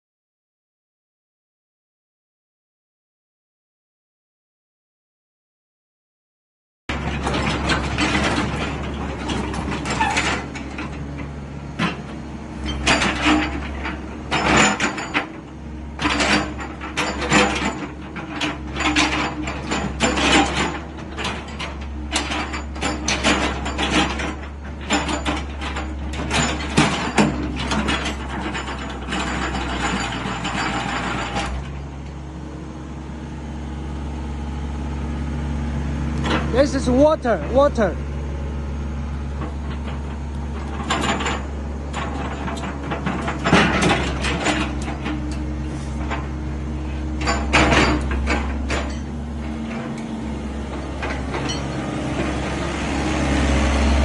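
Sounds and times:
metallic clanks and rattles: 6.9s - 32.0s, 36.2s - 38.0s, 39.4s - 52.6s
excavator engine humming: 6.9s - 54.0s.

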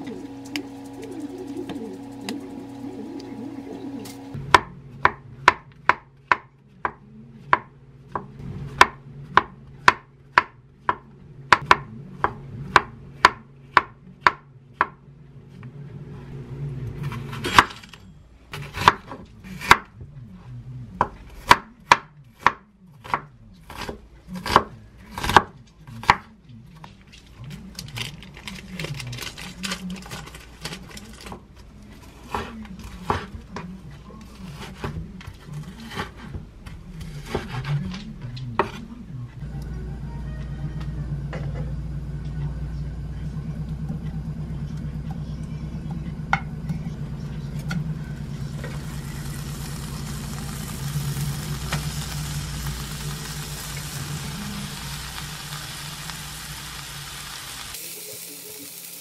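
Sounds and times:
knife chopping on wooden board: 4.5s - 15.0s.

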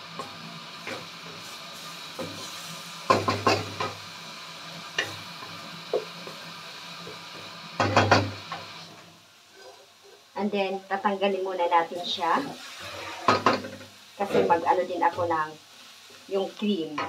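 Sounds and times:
food sizzling in a wok: 0.0s - 17.0s
rapid clatter against pan: 7.8s - 8.4s
wooden spatula scraping a wok: 8.8s - 10.3s, 12.3s - 15.3s.

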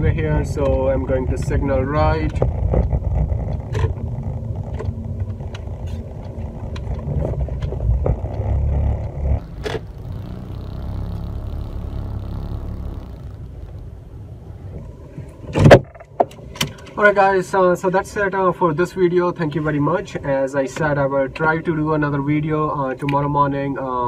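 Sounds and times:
car engine and tyre rumble: 0.0s - 24.0s
turn signal ticking: 2.2s - 14.0s.

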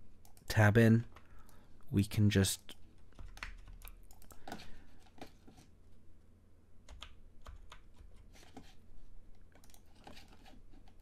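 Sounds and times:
keyboard and mouse clicks: 2.7s - 5.4s, 6.8s - 8.7s, 9.3s - 11.0s.

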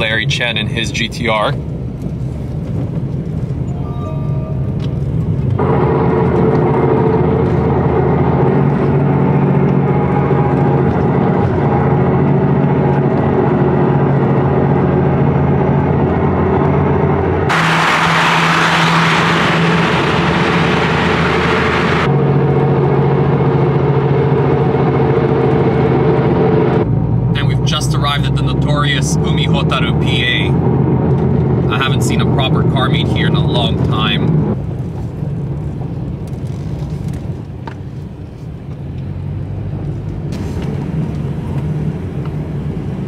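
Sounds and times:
car engine droning: 0.0s - 43.0s
loud rushing hiss: 17.5s - 22.1s.

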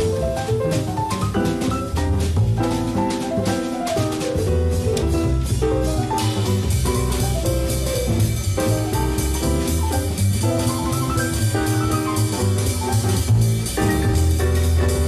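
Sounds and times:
double bass: 0.0s - 15.0s
jazz piano improvising: 0.0s - 15.0s.

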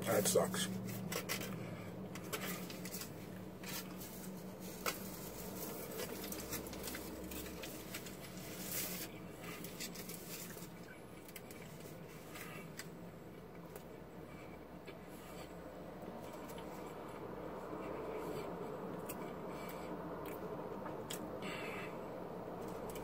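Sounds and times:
low steady hum: 0.0s - 23.0s
quiet chewing: 1.2s - 15.5s, 16.2s - 21.6s
small crackles: 2.2s - 12.9s
foil wrapper crinkling: 2.3s - 11.9s.

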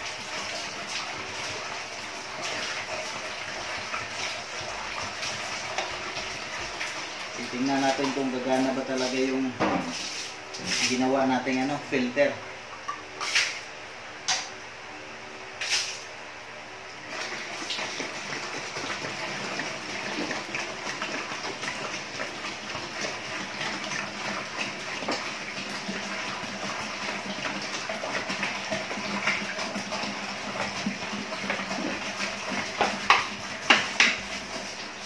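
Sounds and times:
water splashing and trickling: 0.0s - 11.1s.

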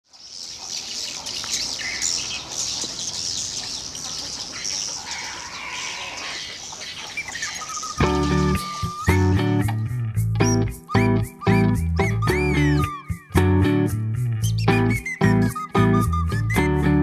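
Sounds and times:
swiftlets twittering chirps: 0.2s - 13.3s
guitar music: 8.0s - 17.0s.

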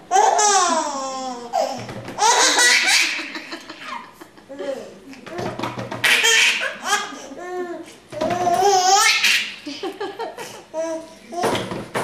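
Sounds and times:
baby laughing: 0.1s - 11.5s.

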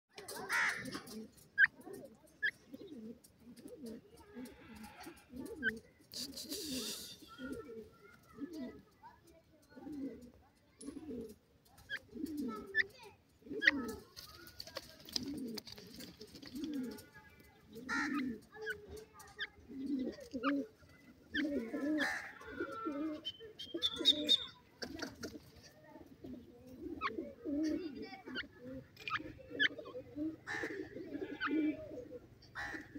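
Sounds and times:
bird pecking ticks: 0.1s - 24.0s, 24.8s - 26.2s, 32.4s - 32.9s
bird cooing: 0.2s - 32.9s
short high bird chirp: 23.2s - 24.6s.

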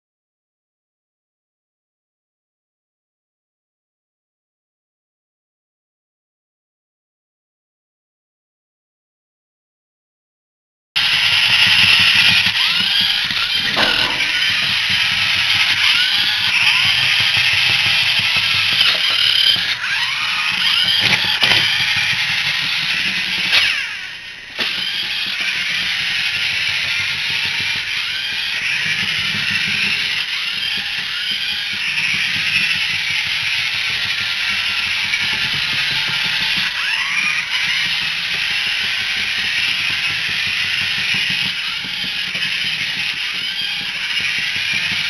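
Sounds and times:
small gear motors whining: 11.0s - 45.0s.

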